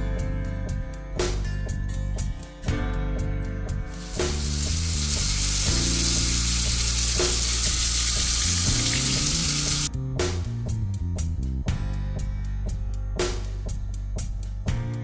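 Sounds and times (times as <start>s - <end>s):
background music: 0.0s - 15.0s
water pouring into a tub: 3.9s - 9.9s.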